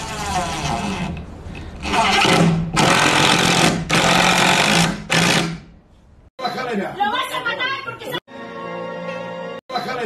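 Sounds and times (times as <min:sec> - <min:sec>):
power drill driving screw: 0:01.8 - 0:05.6.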